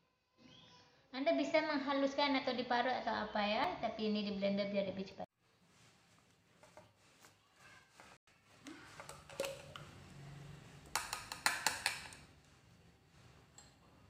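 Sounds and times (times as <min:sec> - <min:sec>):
plastic blender jar handled: 0:08.0 - 0:09.9
sharp taps of jar knocking: 0:10.9 - 0:12.2.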